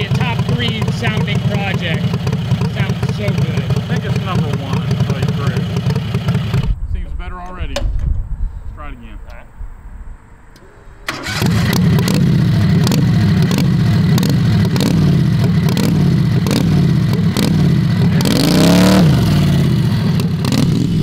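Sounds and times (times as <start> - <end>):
v-twin engine running and revving: 0.0 - 6.8, 11.1 - 21.0.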